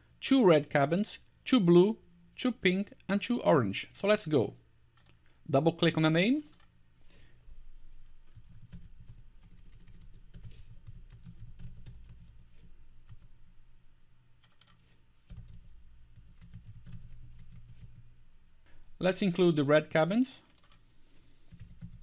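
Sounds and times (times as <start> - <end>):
keyboard typing clicks: 14.4 - 18.0, 20.5 - 20.8.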